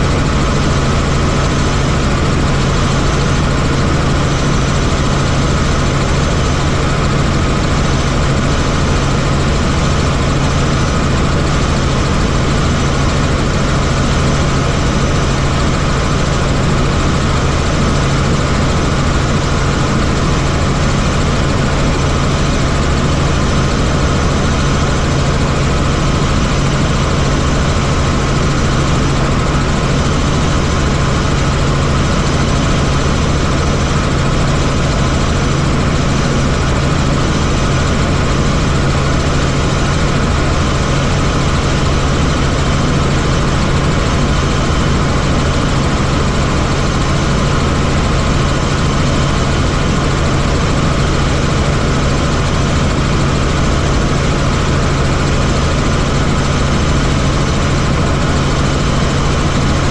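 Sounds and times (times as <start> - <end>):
helicopter engine and rotor: 0.0 - 59.9.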